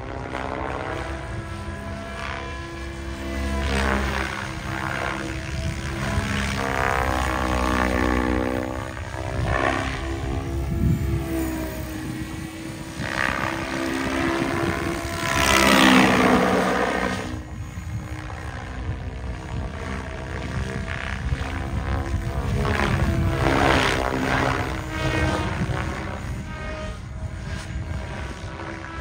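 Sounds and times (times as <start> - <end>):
model helicopter rotor hum: 0.0 - 29.0.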